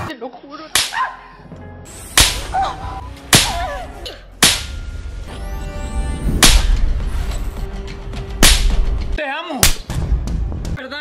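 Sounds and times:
open-hand face slaps: 0:00.8 - 0:01.0, 0:02.2 - 0:02.4, 0:03.3 - 0:03.6, 0:08.4 - 0:08.8, 0:09.6 - 0:09.9
dramatic music: 0:01.4 - 0:10.8.

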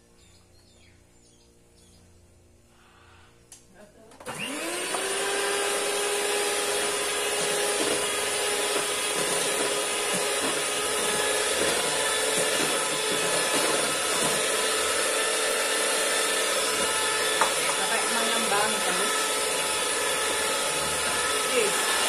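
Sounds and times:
electric hand mixer whirring: 0:04.2 - 0:22.0
beaters knocking on metal bowl: 0:16.7 - 0:18.8.

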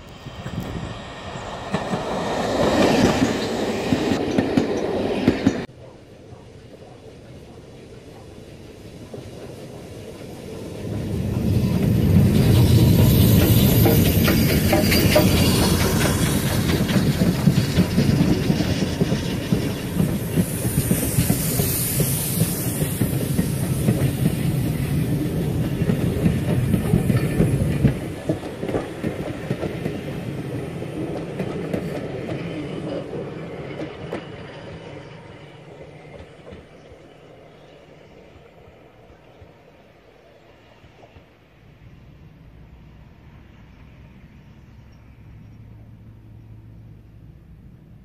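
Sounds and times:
steam train rolling past: 0:00.0 - 0:48.0
wheels clattering over rail joints: 0:08.7 - 0:21.7.

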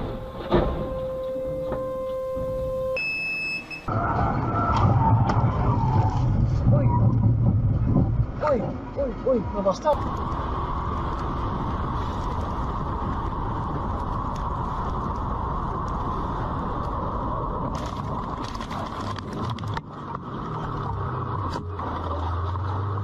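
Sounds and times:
low steady hum: 0:00.0 - 0:03.9
wind and road rush: 0:03.9 - 0:23.0
clicks and scrapes: 0:17.7 - 0:20.2.

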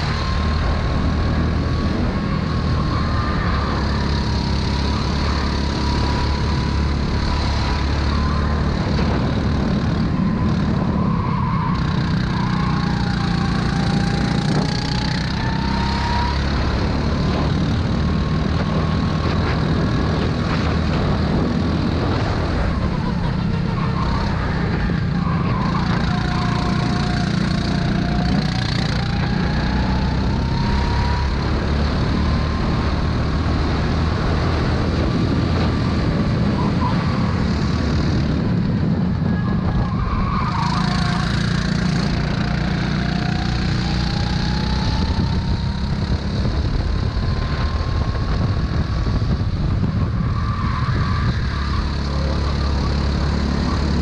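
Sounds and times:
racing kart engine: 0:00.0 - 0:54.0.

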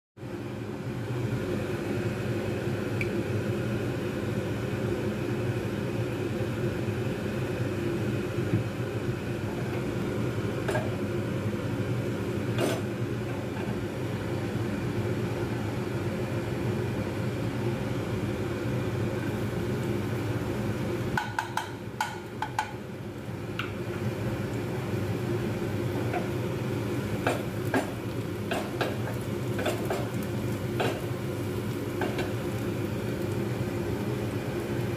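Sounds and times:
garlic sizzling in hot oil: 0:09.0 - 0:34.9.

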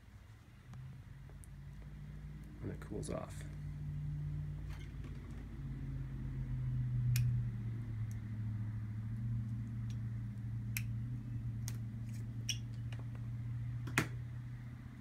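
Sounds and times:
steady low hum: 0:00.0 - 0:15.0
light clicks of pliers and tubing: 0:07.1 - 0:07.4, 0:08.0 - 0:08.2, 0:10.7 - 0:11.0.

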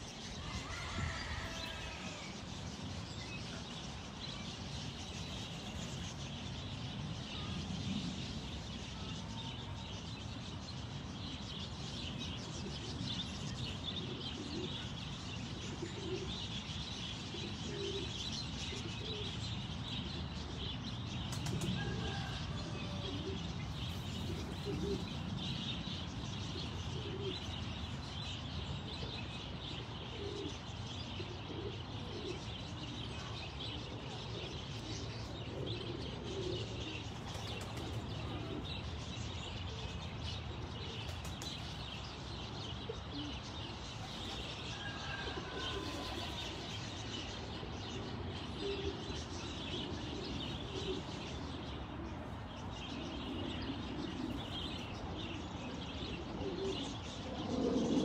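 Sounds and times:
small birds chirping: 0:00.0 - 0:58.0
doves cooing: 0:12.6 - 0:16.6, 0:17.2 - 0:28.0, 0:28.8 - 0:39.0, 0:42.4 - 0:58.0.

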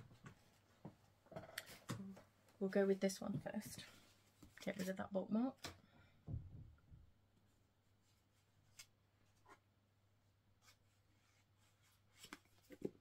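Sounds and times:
book pages rustling: 0:08.0 - 0:09.7, 0:10.6 - 0:13.0.

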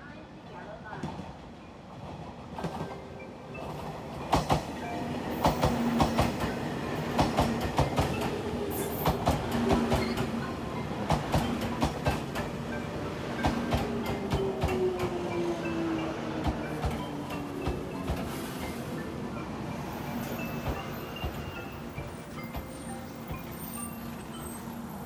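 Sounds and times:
train cars rumbling: 0:00.9 - 0:25.0
train wheels clicking over rail joints: 0:03.7 - 0:12.6.

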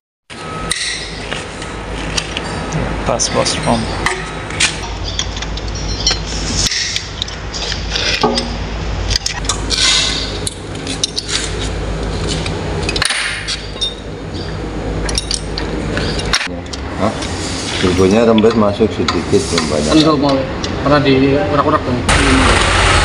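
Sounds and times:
sharp metal knocks: 0:00.5 - 0:01.2, 0:03.6 - 0:07.3, 0:08.2 - 0:10.4
metal tools clinking on engine block: 0:03.4 - 0:07.2, 0:12.8 - 0:16.5.

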